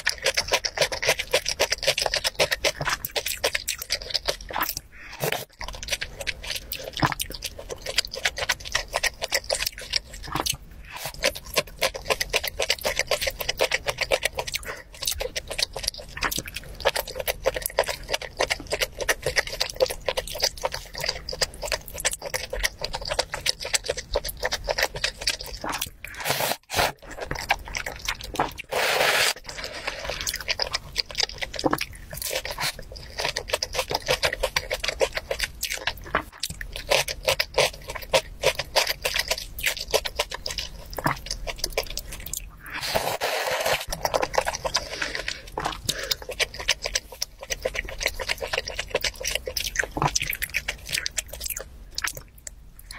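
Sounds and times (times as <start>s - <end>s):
person chewing and crunching food: 0.0s - 52.9s
soup slurping: 28.6s - 30.4s, 42.6s - 44.0s.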